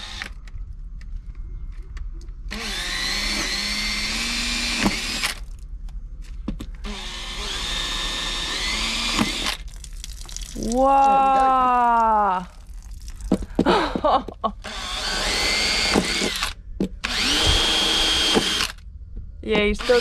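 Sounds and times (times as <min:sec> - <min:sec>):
cordless drill boring: 0:00.0 - 0:00.4, 0:02.5 - 0:05.4, 0:06.8 - 0:09.6, 0:14.6 - 0:18.8, 0:19.8 - 0:20.0.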